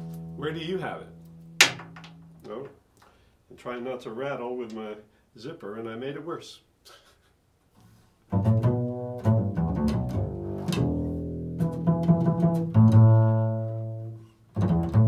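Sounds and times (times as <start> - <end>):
double bass plucked pizzicato: 8.3 - 15.0.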